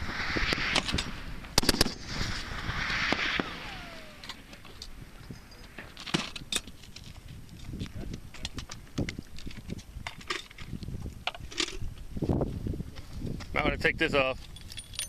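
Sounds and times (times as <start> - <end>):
gunshots with rolling echo: 0.0 - 4.5
short falling whine: 0.0 - 6.1.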